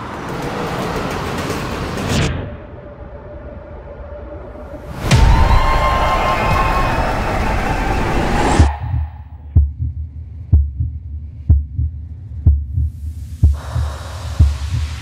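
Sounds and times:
deep heartbeat-like thumps: 8.5 - 15.0.

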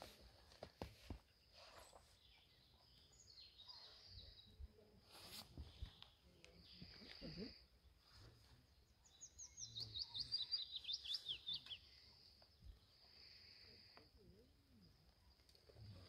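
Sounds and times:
warbler singing: 1.8 - 4.9, 8.5 - 13.8.

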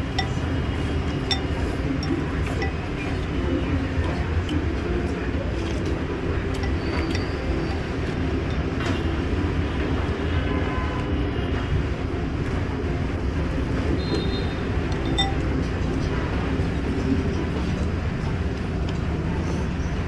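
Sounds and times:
spoon clinking on ceramic bowl: 1.2 - 2.9, 15.0 - 15.5.

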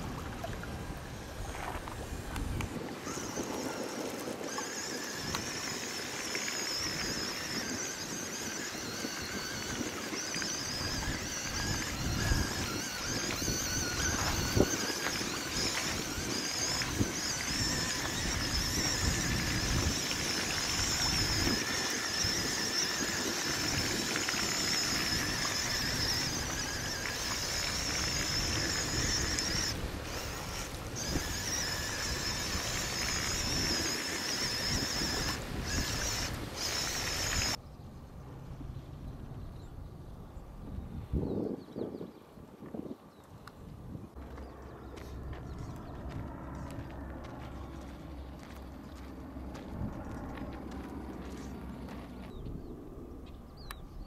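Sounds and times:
electric motor whine: 0.0 - 37.6
wheels splashing water: 0.0 - 37.6
wind on microphone: 0.0 - 37.6, 38.2 - 54.0.

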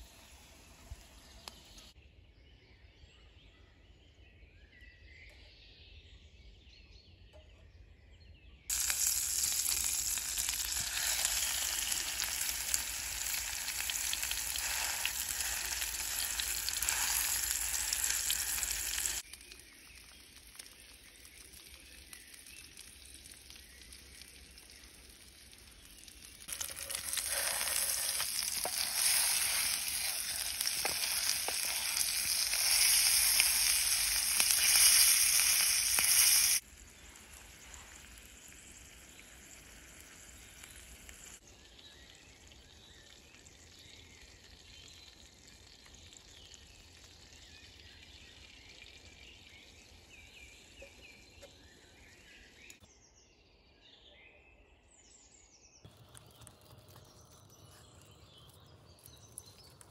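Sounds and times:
steak sizzling in a frying pan: 8.7 - 19.6, 20.4 - 41.4.

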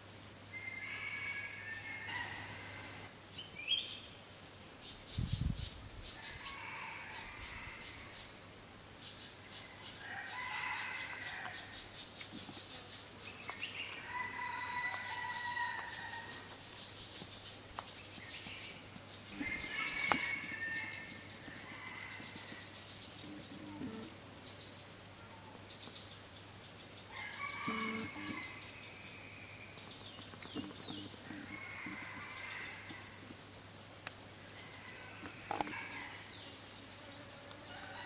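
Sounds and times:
insect drone: 0.0 - 38.0
roosters crowing: 0.5 - 3.1, 10.0 - 11.8, 14.0 - 16.5, 19.3 - 24.1, 27.1 - 28.8, 30.6 - 33.2, 34.5 - 36.3, 37.6 - 38.0.

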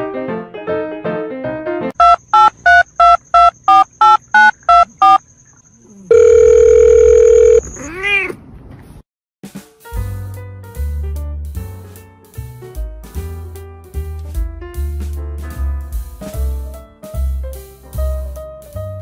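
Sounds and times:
piano music: 0.0 - 2.3, 9.9 - 19.0
short electronic beeps: 2.0 - 5.3
cat meow: 7.6 - 8.4.

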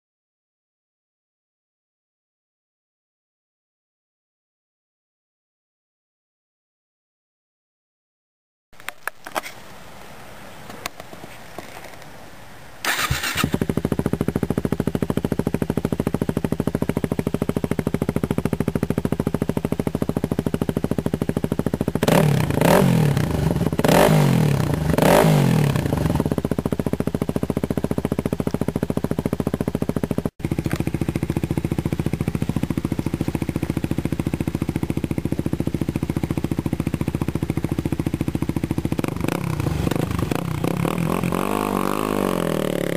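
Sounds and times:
motorcycle engine idling and revving: 12.9 - 42.9.

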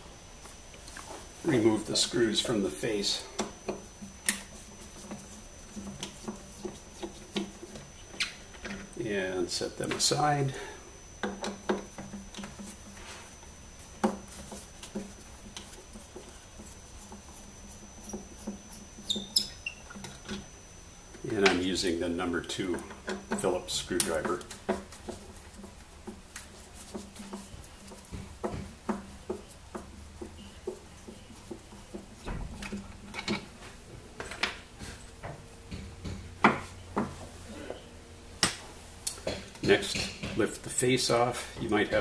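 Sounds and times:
short high squeaks: 19.0 - 20.1.

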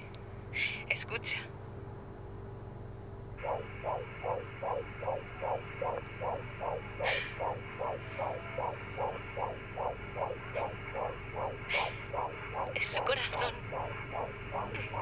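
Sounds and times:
low hum: 1.5 - 15.0
fetal heartbeat on monitor: 3.4 - 15.0.

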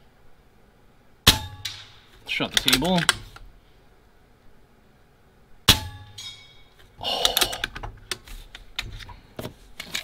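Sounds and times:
pellet ringing steel target: 1.2 - 2.2, 5.6 - 6.8
clattering with clicks: 2.5 - 3.4.

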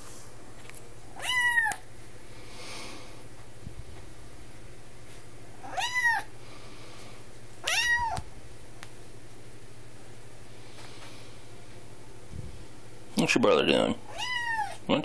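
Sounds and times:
kitten meowing: 1.2 - 1.8, 5.6 - 6.3, 7.6 - 8.2, 14.1 - 14.8.

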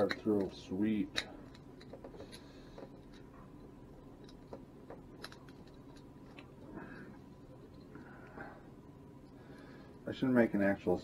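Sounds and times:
small metallic clicks: 0.0 - 6.6.

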